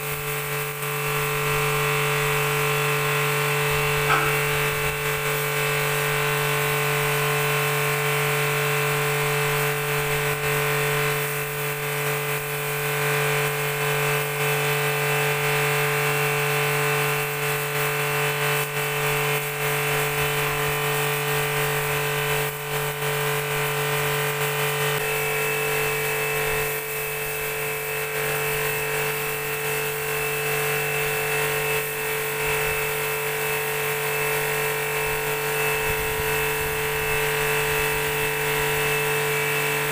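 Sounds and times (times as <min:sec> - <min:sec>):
pressure washer motor hum: 0:00.0 - 0:39.9
water jet hissing on concrete: 0:00.0 - 0:39.9
high whine: 0:02.6 - 0:06.7.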